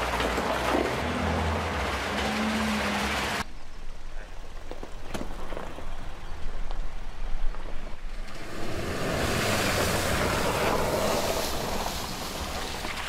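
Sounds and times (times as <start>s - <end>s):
truck engine rumble: 0.0s - 3.5s, 4.1s - 13.0s
water splashing from wheels: 0.0s - 3.5s, 8.0s - 13.0s.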